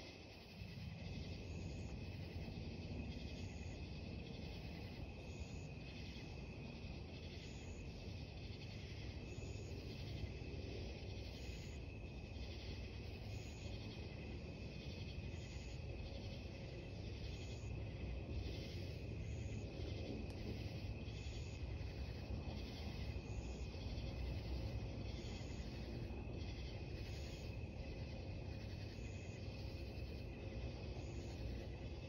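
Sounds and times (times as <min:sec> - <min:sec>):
crickets chirping: 0:00.0 - 0:32.0
faint low rumble: 0:00.1 - 0:32.0.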